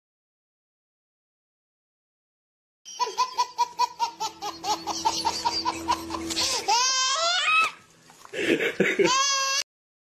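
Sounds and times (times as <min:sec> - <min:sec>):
high-pitched laughter: 0:02.9 - 0:07.8, 0:08.4 - 0:09.6
high-pitched rising and falling cry: 0:04.4 - 0:07.8.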